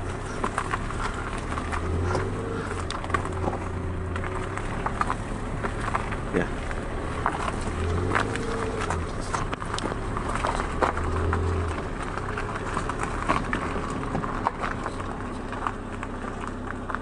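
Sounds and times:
car engine humming: 0.0s - 17.0s
tyres crunching on gravel: 0.0s - 17.0s.

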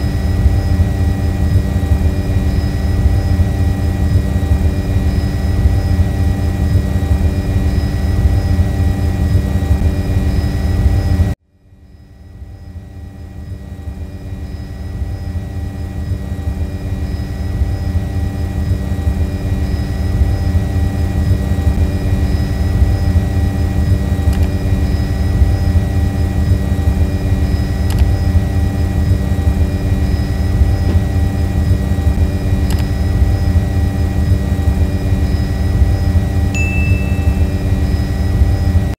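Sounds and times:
drone propeller hum: 0.0s - 38.9s
brief clicks: 32.7s - 32.9s.

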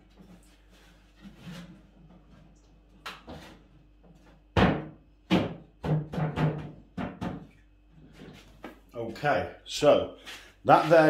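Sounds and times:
hollow wooden knocks: 4.6s - 7.5s.

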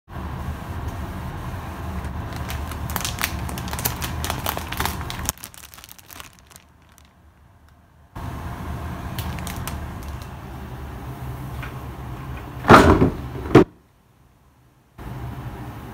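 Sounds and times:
steady low hum: 0.1s - 15.9s
plastic bag crinkling: 2.2s - 7.4s, 9.1s - 10.4s.

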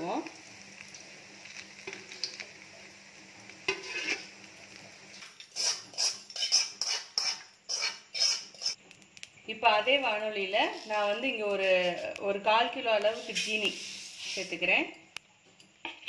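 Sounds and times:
bread frying in oil: 0.0s - 8.8s
metal spoon scraping pan: 3.7s - 4.3s, 5.5s - 8.8s, 10.6s - 12.2s, 13.1s - 14.6s.

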